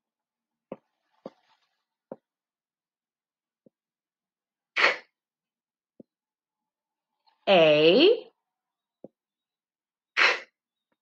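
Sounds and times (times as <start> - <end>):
marker scratching while writing: 4.8 - 5.1.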